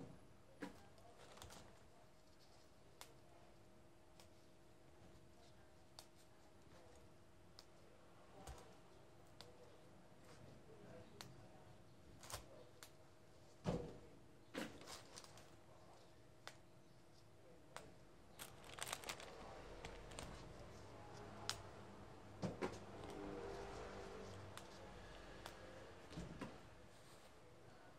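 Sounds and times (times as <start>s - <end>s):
plastic bag crinkling: 18.4s - 20.4s.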